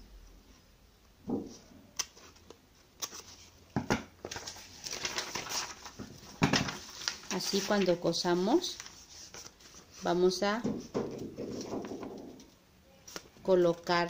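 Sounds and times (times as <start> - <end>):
paper rustling and crinkling: 4.2 - 13.3.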